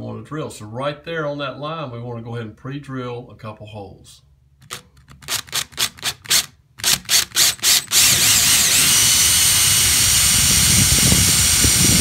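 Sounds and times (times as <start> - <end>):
cordless drill whining: 4.7 - 12.0.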